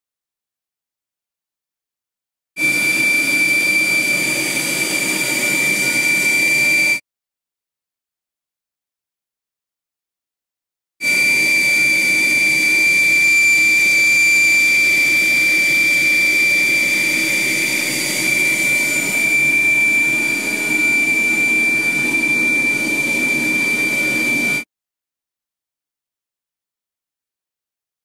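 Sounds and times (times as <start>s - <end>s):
high steady whistling tone: 2.6s - 7.0s, 11.0s - 24.7s.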